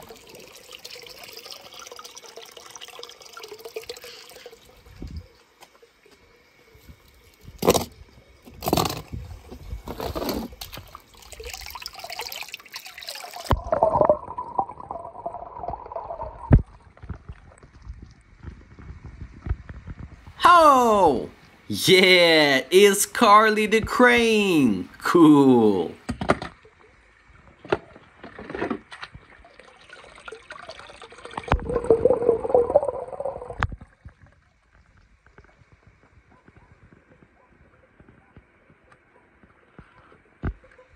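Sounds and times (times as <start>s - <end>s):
water running over plastic slide: 0.0s - 6.0s, 8.5s - 20.1s, 27.3s - 37.1s
pool water splashing: 10.1s - 17.8s, 28.8s - 33.6s
underwater bubbling and churning: 13.3s - 20.0s, 29.1s - 36.3s
muffled underwater gurgling: 31.5s - 33.6s.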